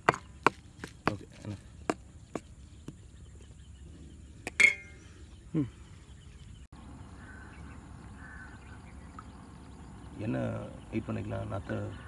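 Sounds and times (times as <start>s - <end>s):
faint outdoor chirping: 0.0s - 12.0s
ringing metal clang: 4.5s - 5.0s.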